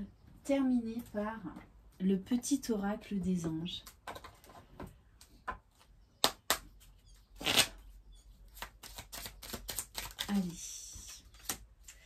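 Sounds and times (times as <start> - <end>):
cards rustling: 8.5 - 12.0.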